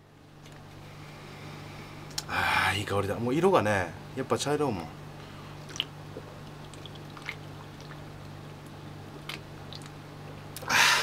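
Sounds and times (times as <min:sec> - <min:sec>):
breathy exhale: 0:10.6 - 0:11.0.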